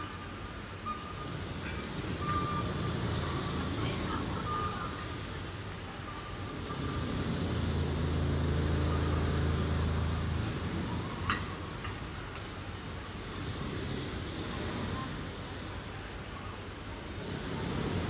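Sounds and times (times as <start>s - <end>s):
vehicle engine humming past: 1.2s - 12.3s.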